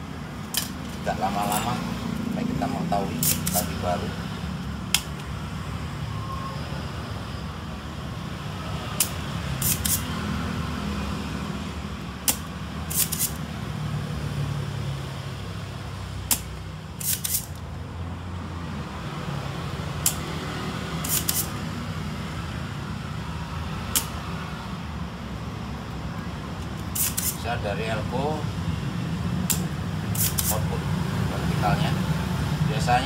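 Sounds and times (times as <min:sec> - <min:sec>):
desoldering pump clicking and hissing: 0:03.1 - 0:03.8, 0:09.0 - 0:10.1, 0:12.0 - 0:13.4, 0:16.3 - 0:17.7, 0:21.0 - 0:21.6, 0:26.6 - 0:27.5, 0:29.4 - 0:30.7.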